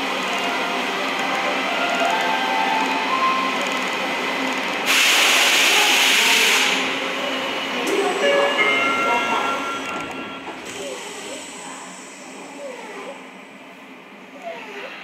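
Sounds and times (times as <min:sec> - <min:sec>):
train wheels on rails: 0:00.0 - 0:12.5
loud hiss: 0:04.9 - 0:07.0.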